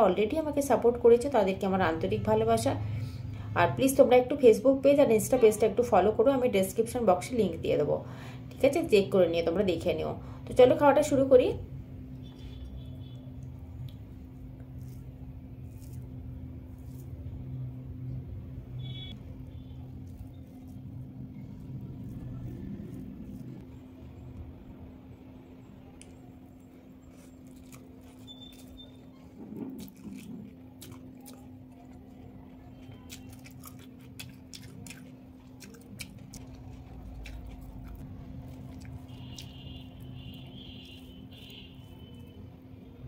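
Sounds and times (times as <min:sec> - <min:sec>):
steady low hum: 0:00.0 - 0:43.0
soft chewing: 0:12.2 - 0:17.5, 0:19.5 - 0:24.4, 0:25.9 - 0:42.6.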